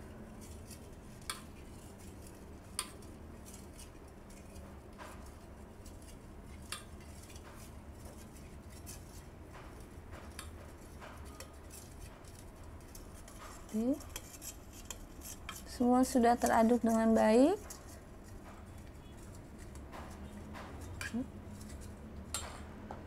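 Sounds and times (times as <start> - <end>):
metal spoon scraping steel bowl: 11.2 - 22.0.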